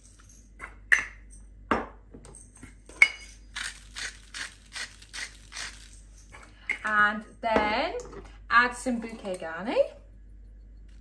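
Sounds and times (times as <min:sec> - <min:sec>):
spice grinder grinding: 0:03.5 - 0:06.4.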